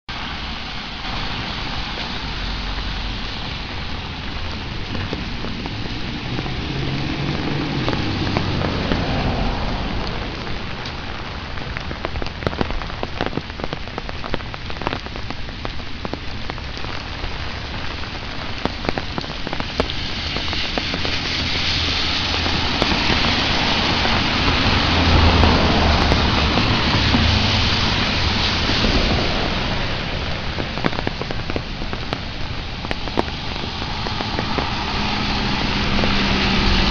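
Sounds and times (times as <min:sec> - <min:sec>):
rain on pavement and leaves: 0:00.1 - 0:36.9
low rumble: 0:17.4 - 0:36.9.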